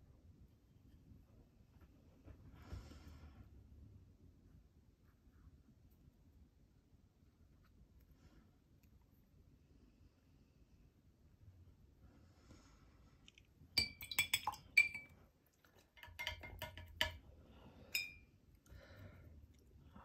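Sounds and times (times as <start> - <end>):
paintbrush clinking against glass: 13.8 - 15.2, 16.0 - 17.2, 17.9 - 18.3.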